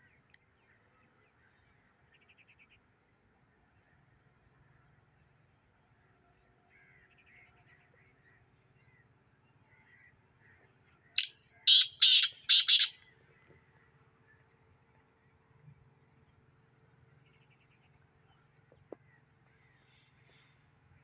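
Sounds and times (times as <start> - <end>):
bird calling loud notes: 11.2 - 13.0
small birds chirping: 11.2 - 13.0.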